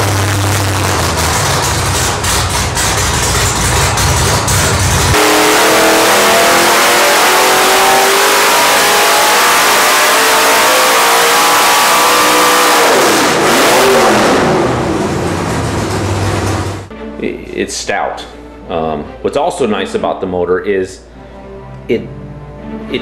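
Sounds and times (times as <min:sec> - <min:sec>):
engine revving at full throttle: 0:00.0 - 0:02.9, 0:03.7 - 0:16.9.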